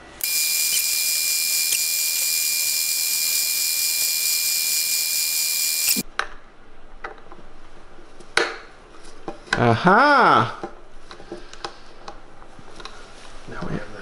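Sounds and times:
milling machine cutting metal: 0.2 - 6.0.

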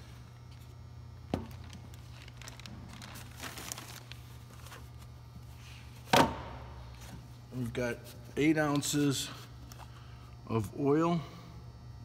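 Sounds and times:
steady low hum: 0.0 - 12.0
plastic bag crinkling: 1.5 - 5.0.

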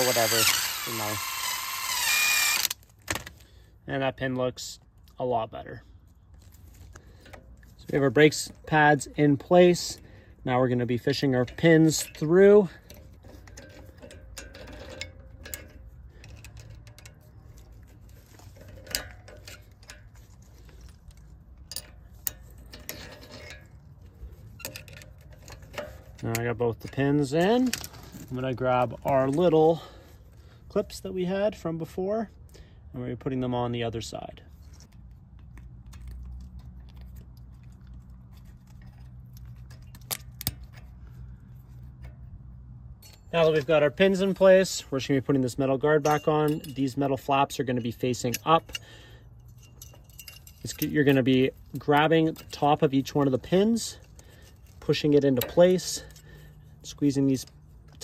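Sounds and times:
low steady hum: 0.0 - 58.0
metal clicks and scrapes: 10.7 - 29.8, 34.5 - 58.0.

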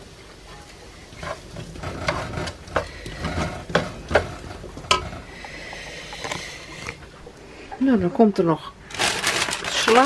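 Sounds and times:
potatoes sizzling in a pan: 0.0 - 6.6
plastic spatula scraping a pan: 1.1 - 5.4.

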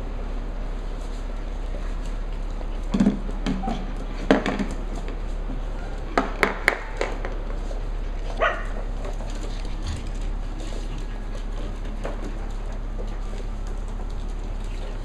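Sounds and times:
puppies barking and yipping: 8.3 - 11.6.

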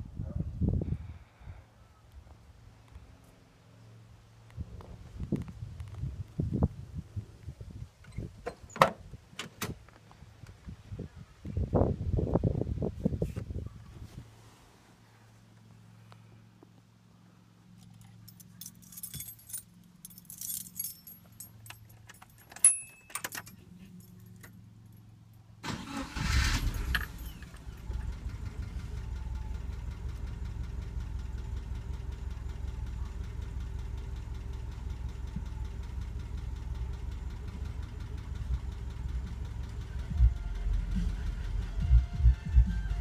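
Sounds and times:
car engine starting and idling: 15.5 - 43.0
keys jangling in ignition: 17.7 - 25.1, 25.7 - 28.0.

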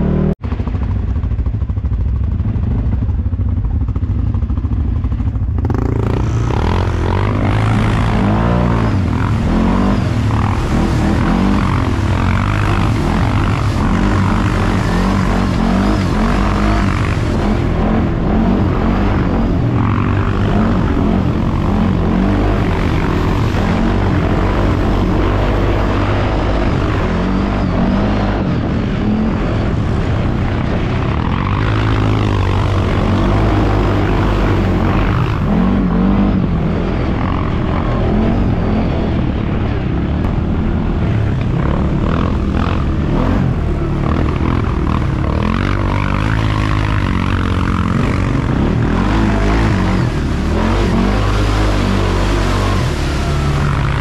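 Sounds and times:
atv engine revving in mud: 0.0 - 54.0.

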